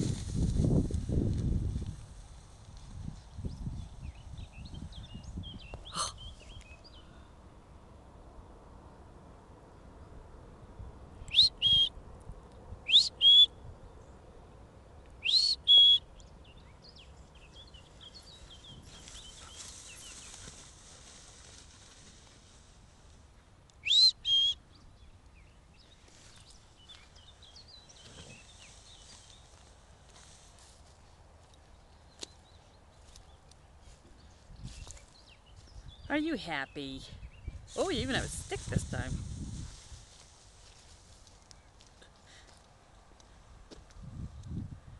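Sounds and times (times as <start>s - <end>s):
person whistling to call a dog: 23.9s - 24.6s.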